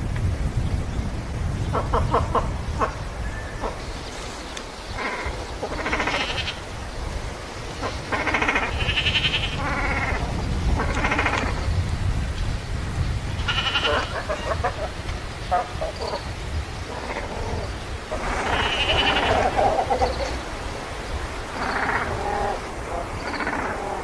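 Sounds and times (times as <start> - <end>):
waterfowl calling: 1.7 - 11.8, 13.3 - 24.0.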